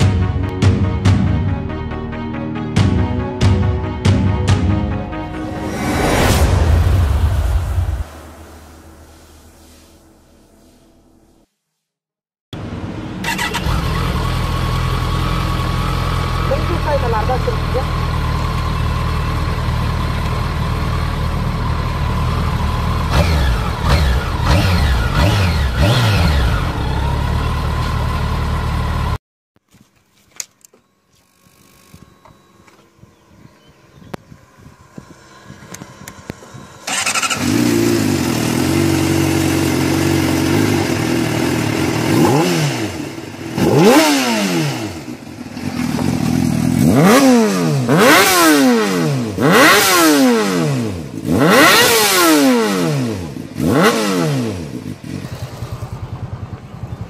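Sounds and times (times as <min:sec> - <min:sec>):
motorcycle engine idling and revving: 0:00.0 - 0:01.3, 0:12.6 - 0:29.2, 0:31.1 - 0:57.0
second motorcycle starting and idling: 0:12.6 - 0:29.2, 0:30.4 - 0:57.0.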